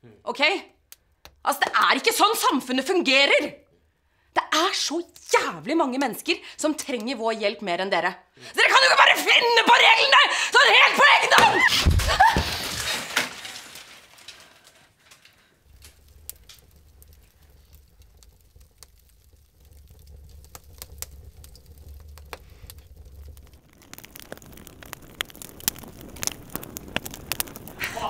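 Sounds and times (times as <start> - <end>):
burning paper crackling: 8.6 - 28.0.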